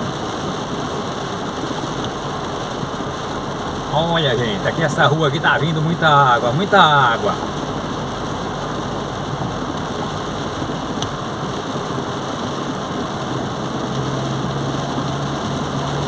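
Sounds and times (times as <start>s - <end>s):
car engine running: 0.0s - 16.0s
rain on car: 0.0s - 16.0s
tyres on wet street: 0.0s - 16.0s.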